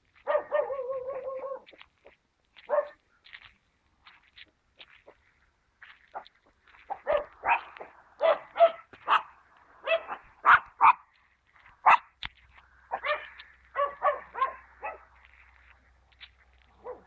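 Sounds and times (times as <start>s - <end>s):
dog barking: 0.2s - 1.8s, 2.6s - 3.0s, 6.9s - 11.1s, 11.8s - 12.1s, 12.9s - 15.1s, 16.8s - 17.0s.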